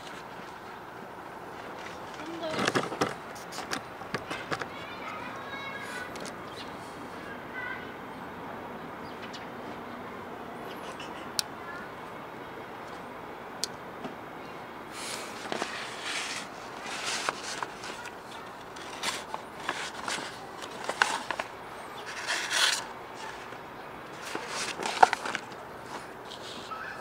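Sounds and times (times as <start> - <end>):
paper rustling and crackling: 1.6 - 4.8, 15.0 - 26.7
knife blade cutting paper: 18.7 - 23.4.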